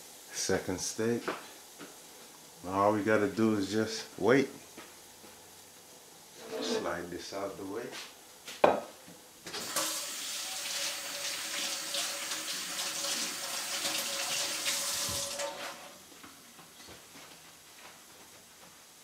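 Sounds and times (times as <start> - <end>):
water running: 9.4 - 16.0.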